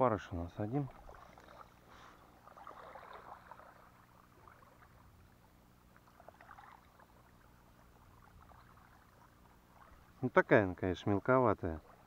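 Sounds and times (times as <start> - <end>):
soft crackling rustles: 0.7 - 10.3.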